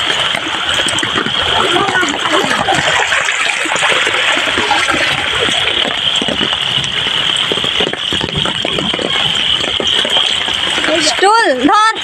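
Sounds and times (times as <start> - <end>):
floodwater rushing over ground: 0.0 - 12.0
heavy rain: 0.0 - 12.0.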